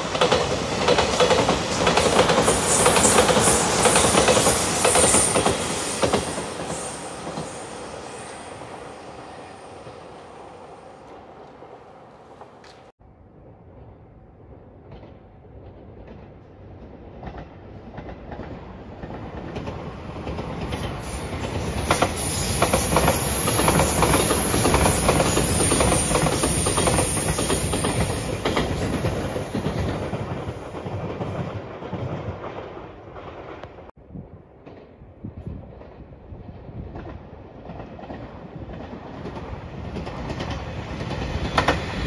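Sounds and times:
electric train passing: 0:00.0 - 0:33.9, 0:37.4 - 0:42.0
high hiss: 0:01.6 - 0:11.2, 0:20.8 - 0:28.4.

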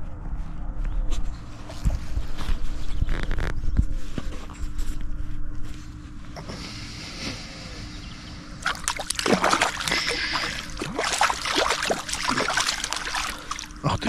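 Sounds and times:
water splashing and sloshing: 0:08.6 - 0:14.0.

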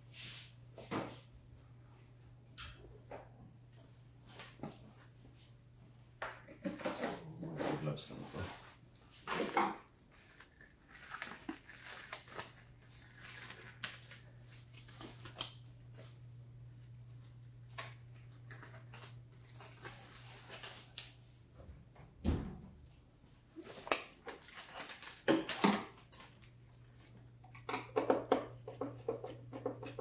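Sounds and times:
rubber gloves rustling and snapping: 0:09.2 - 0:16.0
thump: 0:22.2 - 0:22.7.

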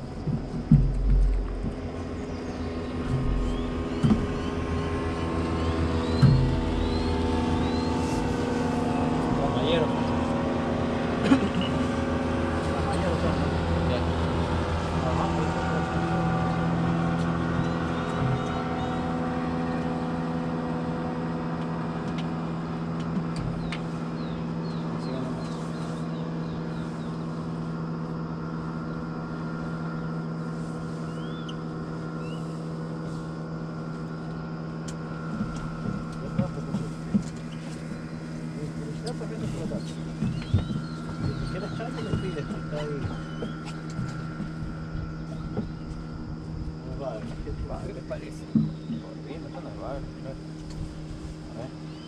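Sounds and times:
boat motor humming: 0:00.0 - 0:52.0.

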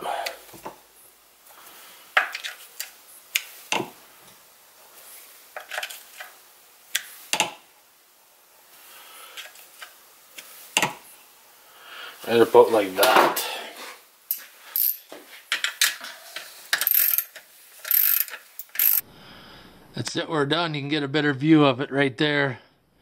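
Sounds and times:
metallic chainsaw chain clicks: 0:16.8 - 0:19.0.

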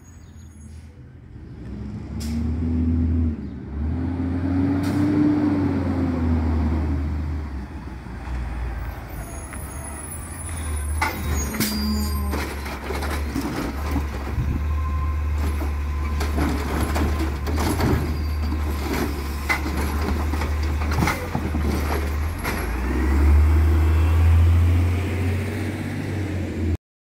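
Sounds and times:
garbage truck engine drone: 0:01.1 - 0:26.8
hydraulic arm tipping cart: 0:09.1 - 0:23.0
knocks and clanks of cart: 0:10.9 - 0:14.6, 0:15.3 - 0:22.8.

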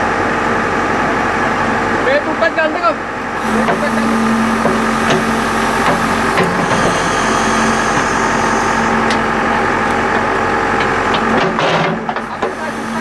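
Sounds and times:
diesel engine running steadily: 0:00.0 - 0:13.0
hydraulic arm moving: 0:03.4 - 0:13.0.

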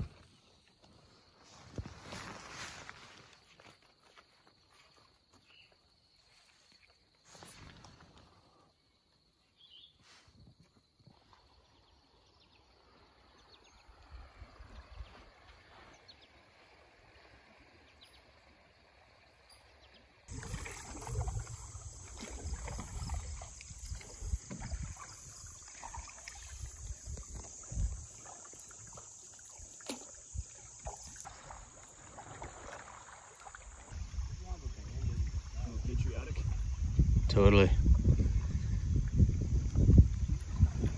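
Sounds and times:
canoe paddling knocks and rumbles: 0:20.3 - 0:40.9.

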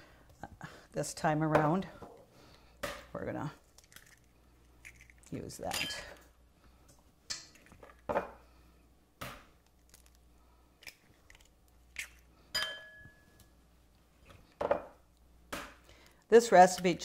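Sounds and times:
eggs cracking against bowl: 0:03.7 - 0:05.8.

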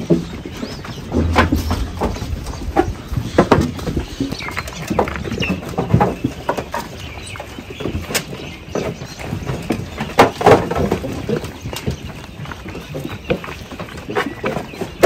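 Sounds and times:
sheep crunching and chewing feed: 0:04.4 - 0:15.0.

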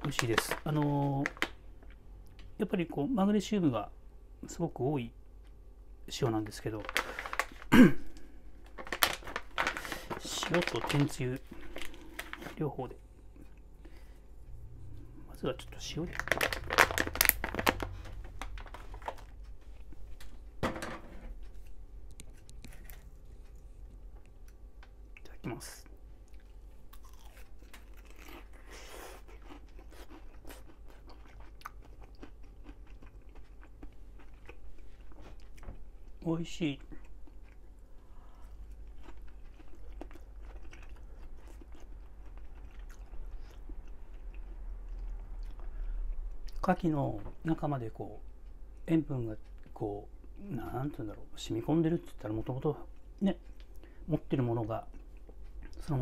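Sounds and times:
plastic bag crinkling: 0:00.0 - 0:01.6, 0:06.6 - 0:07.7, 0:08.6 - 0:12.7, 0:15.9 - 0:19.4
low steady hum: 0:00.0 - 0:56.0
person chewing crunchy food: 0:15.9 - 0:20.1, 0:21.4 - 0:36.2, 0:36.8 - 0:46.6.

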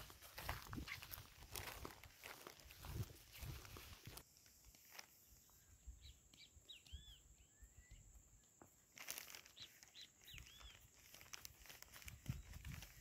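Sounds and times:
faint bird chirps: 0:05.2 - 0:08.6, 0:09.2 - 0:11.3.

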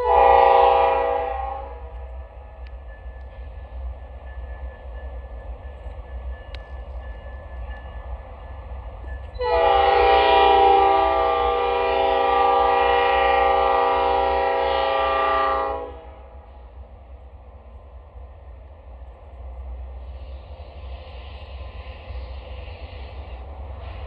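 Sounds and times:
locomotive air horn blast: 0:00.0 - 0:01.9, 0:09.4 - 0:16.4.

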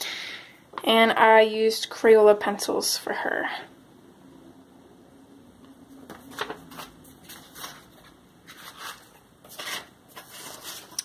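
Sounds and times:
paper rustling: 0:06.1 - 0:11.0.

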